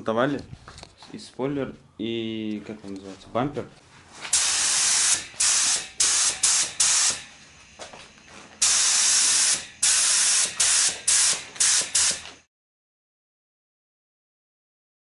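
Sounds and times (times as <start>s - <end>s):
paint spray hissing: 4.3s - 7.3s, 8.6s - 12.4s.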